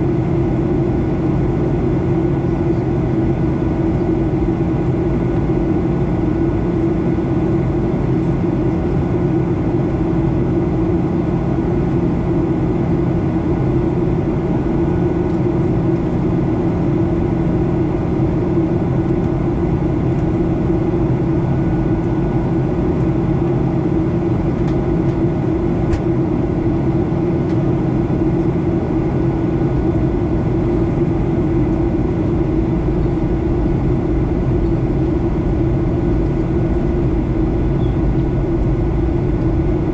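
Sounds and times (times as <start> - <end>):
jet engine and airflow rush: 0.0 - 39.9
low steady hum: 11.2 - 39.9
faint whines: 30.1 - 39.9.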